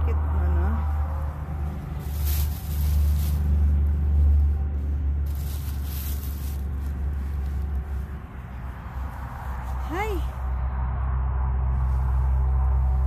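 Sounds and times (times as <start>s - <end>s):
steady low rumble: 0.0s - 13.0s
plastic bag crinkling: 2.0s - 3.6s, 5.2s - 7.1s.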